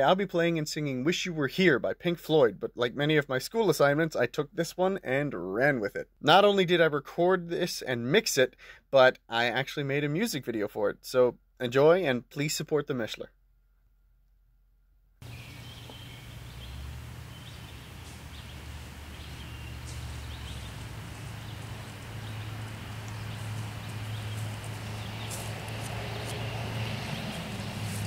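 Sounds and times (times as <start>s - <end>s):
low rumble and hiss: 15.2s - 25.7s
footsteps through grass: 15.2s - 28.0s.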